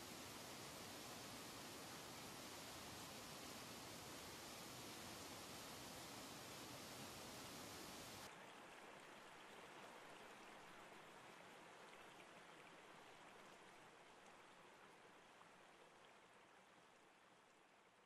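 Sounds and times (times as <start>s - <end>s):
running water rushing: 0.0s - 8.7s.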